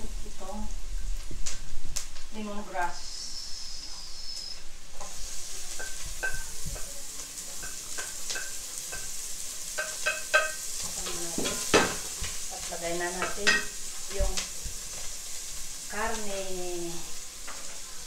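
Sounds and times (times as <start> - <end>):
onion and garlic sizzling: 0.0 - 18.0
wooden spatula scraping a pot: 17.3 - 18.0.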